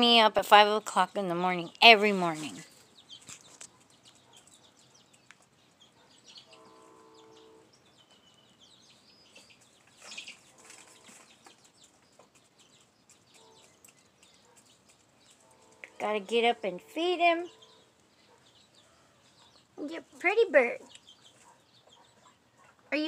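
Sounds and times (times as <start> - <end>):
chicken clucking: 9.3 - 19.7, 20.9 - 23.0.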